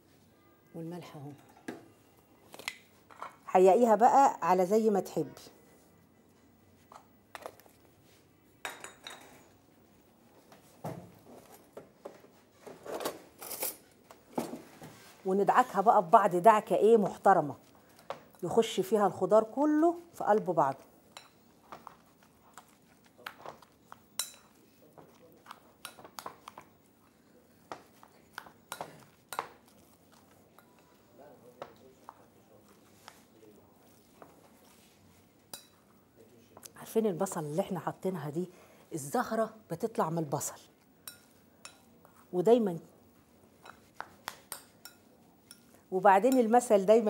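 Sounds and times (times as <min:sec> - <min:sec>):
dishes and utensils clinking: 0:01.3 - 0:03.4, 0:08.6 - 0:09.6, 0:23.2 - 0:26.7, 0:41.0 - 0:42.2, 0:43.6 - 0:46.6.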